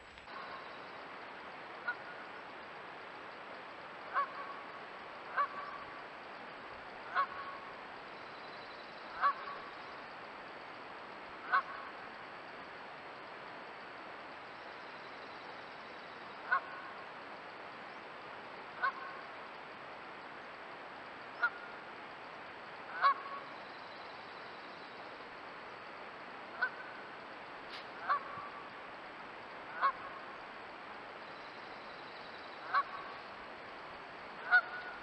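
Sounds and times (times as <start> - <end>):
steady hiss: 0.0 - 35.0
goose honking: 11.4 - 11.9, 22.9 - 23.4, 26.6 - 26.9, 28.0 - 28.5, 29.7 - 30.2, 32.6 - 33.1, 34.4 - 35.0.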